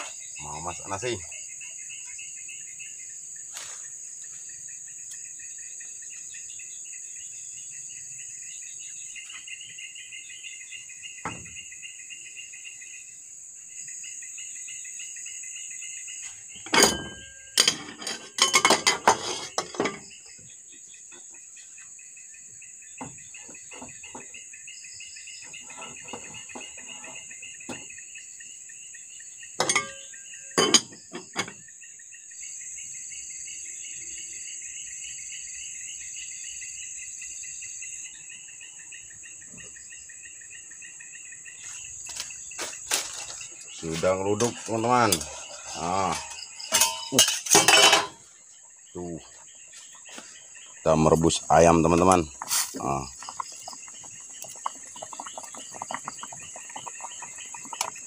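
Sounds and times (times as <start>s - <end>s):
insects chirring: 0.0s - 58.0s
metal pot and lid clanking: 16.6s - 20.1s, 29.6s - 31.6s, 45.1s - 48.2s.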